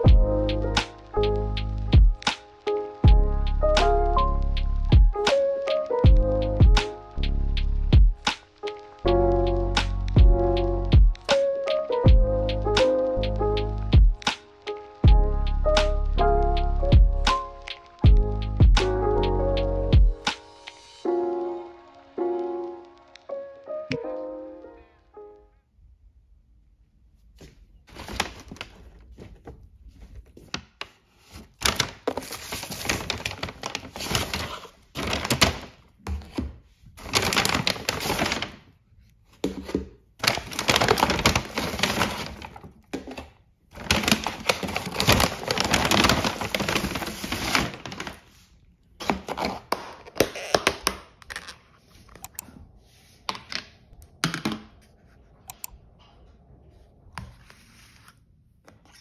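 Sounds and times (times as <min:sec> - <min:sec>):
paper bag rustling: 0:27.9 - 0:30.4, 0:31.1 - 0:38.6, 0:39.4 - 0:49.6.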